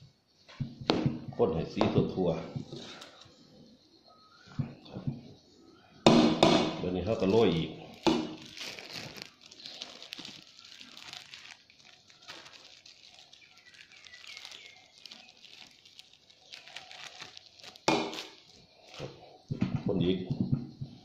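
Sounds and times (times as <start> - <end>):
plastic bag crinkling: 7.2 - 19.1.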